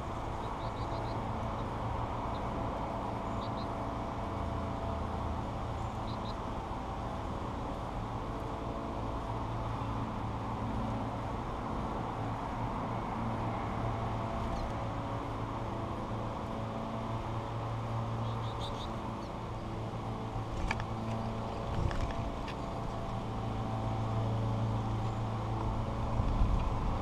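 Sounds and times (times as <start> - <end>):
finches chirping: 0.2 - 2.5, 3.2 - 3.8, 5.8 - 6.4, 18.2 - 19.4.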